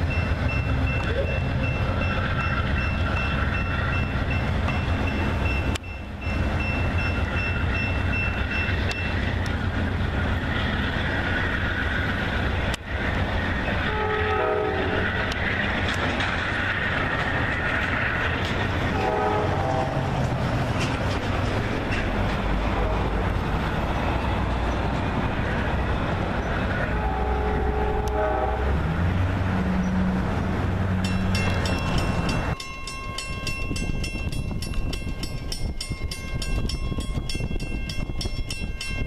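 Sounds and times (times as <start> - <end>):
train rumbling past: 0.0 - 39.0
train horn: 13.8 - 15.4, 18.9 - 20.2, 22.7 - 23.4, 26.8 - 29.0.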